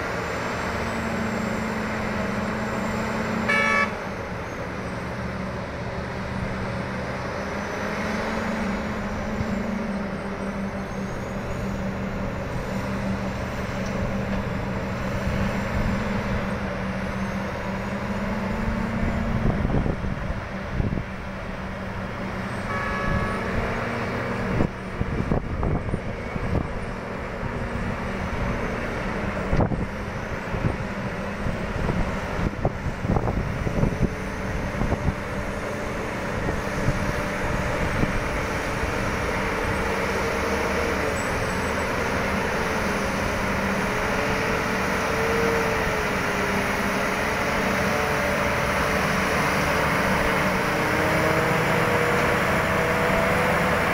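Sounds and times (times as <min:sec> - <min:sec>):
diesel engines running: 0:00.0 - 0:53.9.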